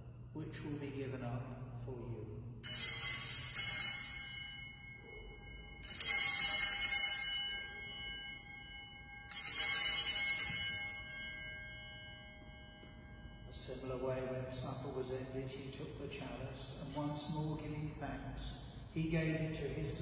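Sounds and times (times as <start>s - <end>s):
altar bells ringing: 2.6s - 17.3s.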